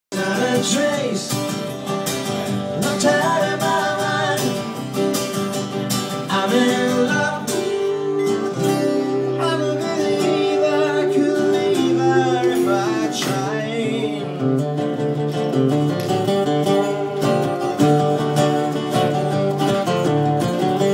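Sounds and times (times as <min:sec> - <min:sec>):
man singing into a microphone: 0:00.1 - 0:01.5, 0:02.6 - 0:04.9, 0:06.2 - 0:14.7
acoustic guitars strummed: 0:00.1 - 0:20.9.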